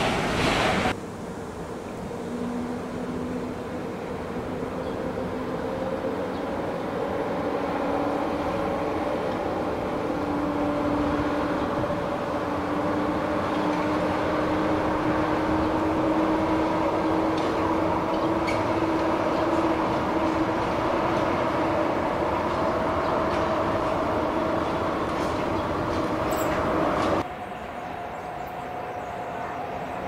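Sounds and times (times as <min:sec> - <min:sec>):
train running on track: 0:00.0 - 0:30.0
train motors whining: 0:02.8 - 0:27.2.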